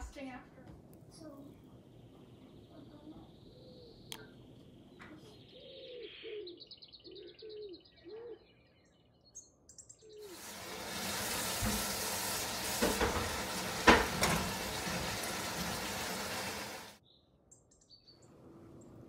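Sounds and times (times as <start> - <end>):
oil sizzling: 10.2 - 17.0.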